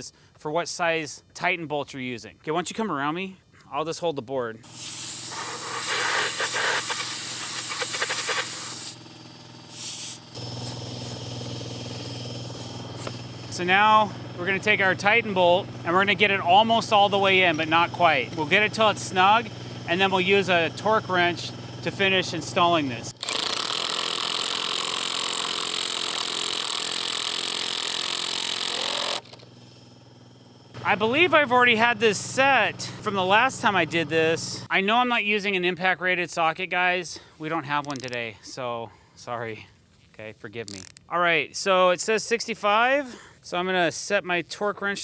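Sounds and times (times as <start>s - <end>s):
steady motor hum: 4.6s - 34.7s
compressed air hissing from hose: 4.7s - 9.0s, 9.7s - 10.8s
impact driver hammering screw: 23.2s - 29.5s.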